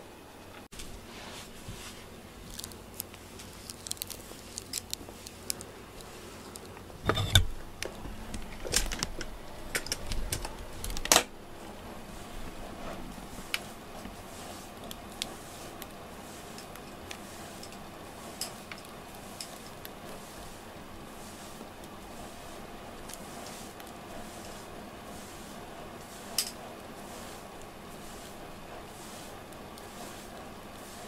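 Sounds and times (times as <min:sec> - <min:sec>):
grooming glove brushing fur: 0:11.6 - 0:31.0.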